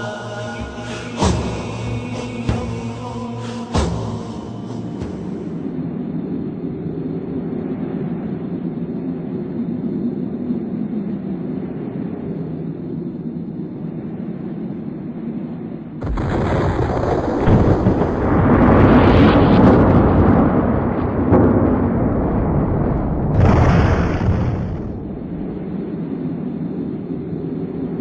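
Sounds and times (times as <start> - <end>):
low rumble: 0.0 - 28.0
cinematic explosion: 16.0 - 25.8.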